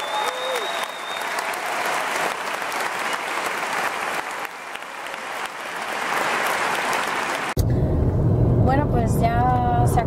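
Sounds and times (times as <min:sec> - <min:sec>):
audience applauding: 0:00.0 - 0:07.6
low rumble: 0:07.6 - 0:10.0.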